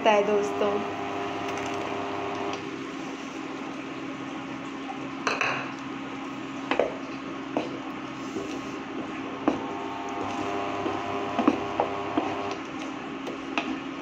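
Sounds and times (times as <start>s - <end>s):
induction cooktop hum: 0.0s - 14.0s.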